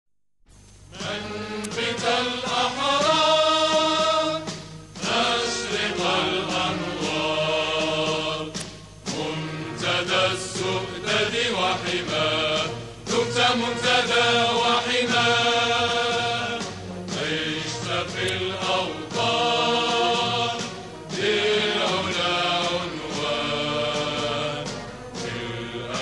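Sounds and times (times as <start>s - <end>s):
chanted vocal music: 0.9s - 26.0s.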